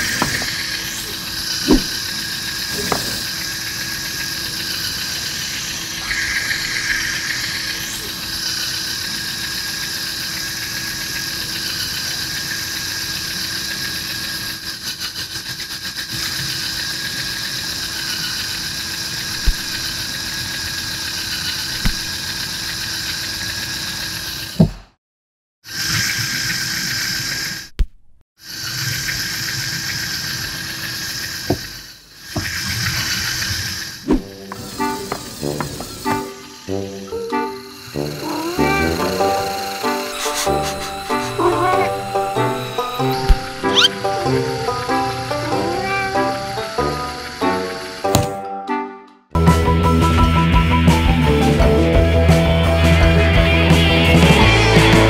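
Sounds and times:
toy motors and gears whining: 0.0 - 24.6, 28.4 - 48.1
sharp plastic knocks: 1.7 - 2.0, 21.8 - 22.1.

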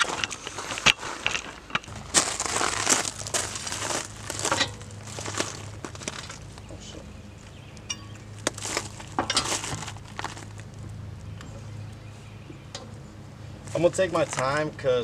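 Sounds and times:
footsteps crunching gravel: 0.0 - 11.4, 13.6 - 14.8
lug wrench clinking: 4.5 - 5.0, 7.8 - 8.3, 9.0 - 9.7.

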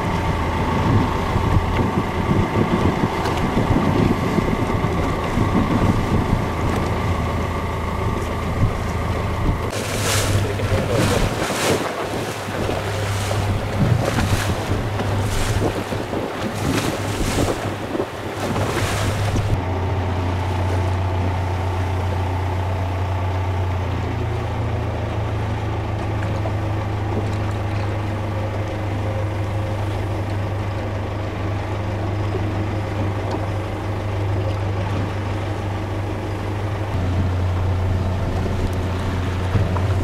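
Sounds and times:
wind buffeting microphone: 0.0 - 19.7, 36.9 - 40.0
boat engine humming: 0.0 - 40.0
waves: 0.0 - 40.0.

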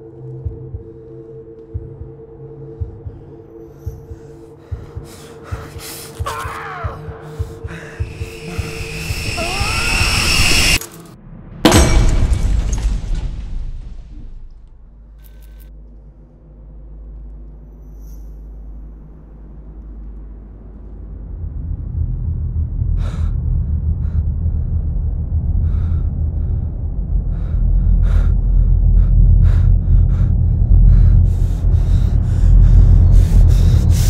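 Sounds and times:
low rumbling drone: 6.8 - 15.2, 15.8 - 34.0.

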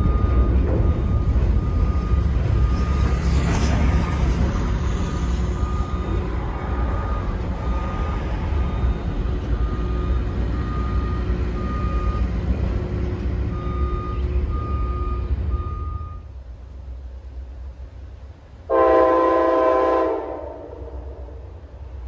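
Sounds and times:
back-up alarm beeping: 0.0 - 3.4, 5.5 - 12.4, 13.5 - 16.3
train horn blast: 18.7 - 21.6.

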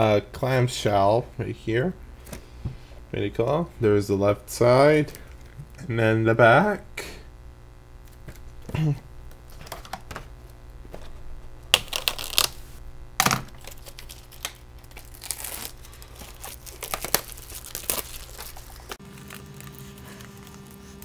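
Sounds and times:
plastic wrapping tearing and crinkling: 10.9 - 21.0.

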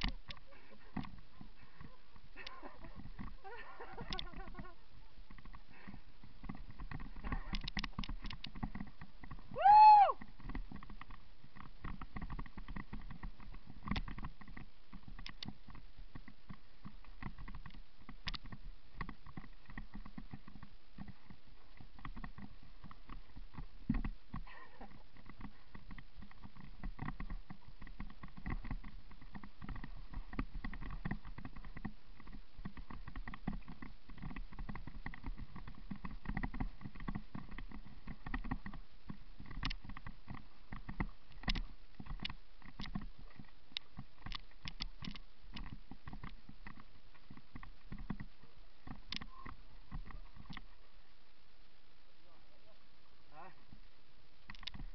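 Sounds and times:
bike tyres over rough ground: 0.0 - 52.1.

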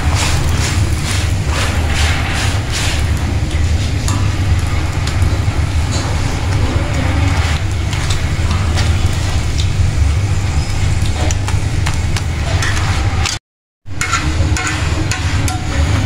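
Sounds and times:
gas burner flame rumbling: 0.0 - 16.0
spatula tapping and scraping: 14.0 - 15.9.

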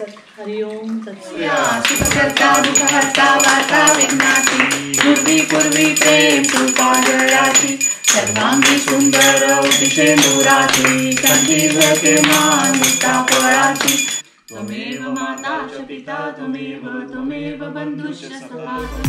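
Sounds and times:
group singing a hymn: 1.2 - 19.0
rhythmic hand-claps: 1.5 - 14.2.

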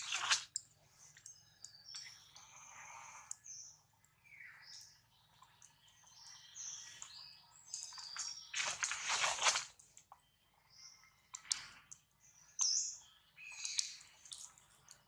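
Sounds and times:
birds chirping and whistling: 1.2 - 9.6, 12.4 - 14.2.

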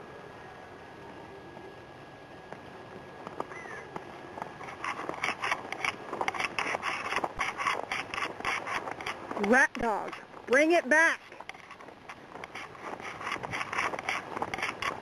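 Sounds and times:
footsteps crunching in snow: 4.4 - 15.0.

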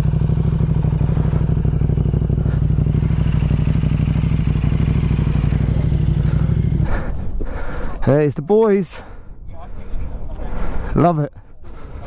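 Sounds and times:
motorcycle engine idling: 0.0 - 7.8.

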